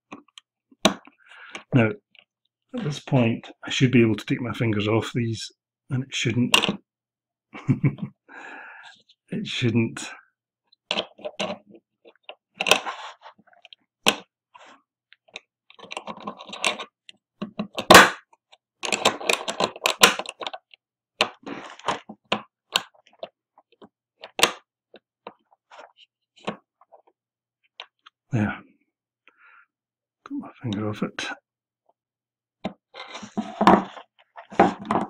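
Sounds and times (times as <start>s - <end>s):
small metal lock parts clicking: 18.8s - 20.6s.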